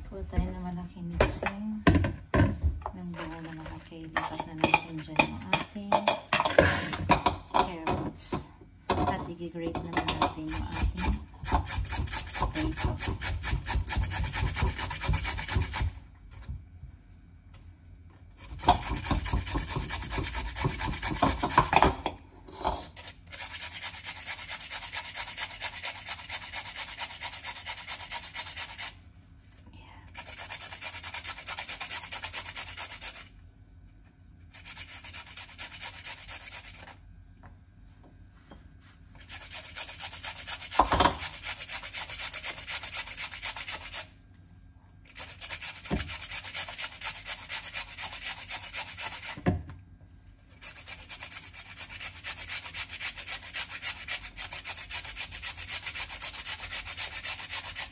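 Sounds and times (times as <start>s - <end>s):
potato grating on metal grater: 3.0s - 7.8s, 9.8s - 16.0s, 18.3s - 29.1s, 30.1s - 33.4s, 34.1s - 37.0s, 39.2s - 44.2s, 45.0s - 49.5s, 50.5s - 57.9s.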